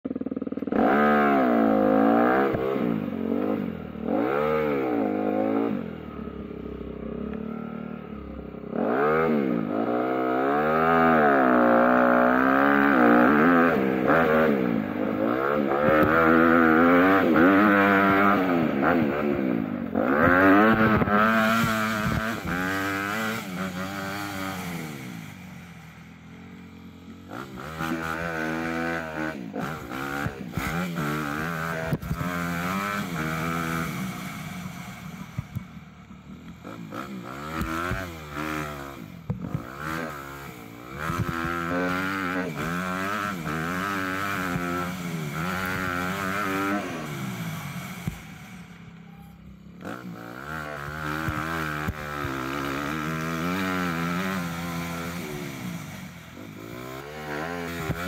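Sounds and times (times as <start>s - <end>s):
engine revving: 0.1s - 58.0s.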